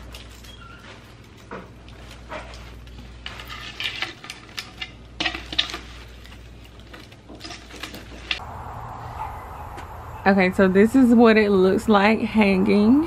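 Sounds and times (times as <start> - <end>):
twigs crackling and rustling: 0.0 - 10.2.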